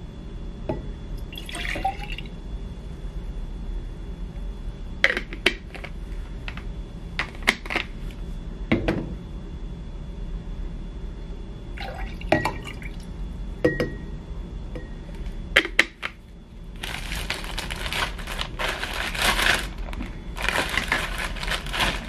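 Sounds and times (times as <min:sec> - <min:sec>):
plastic bag crinkling: 0:16.8 - 0:22.0.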